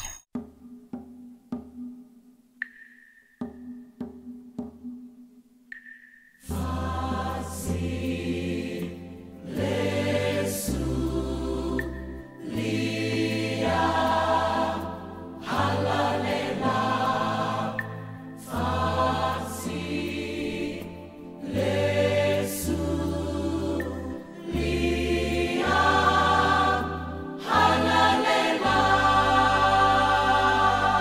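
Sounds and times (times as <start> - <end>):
choir singing: 6.5 - 31.0.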